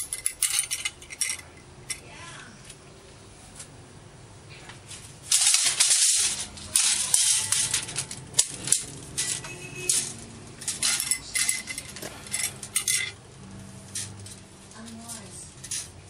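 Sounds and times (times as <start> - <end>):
tape measure metallic rattles: 0.0 - 2.0, 5.0 - 13.2, 13.8 - 16.0.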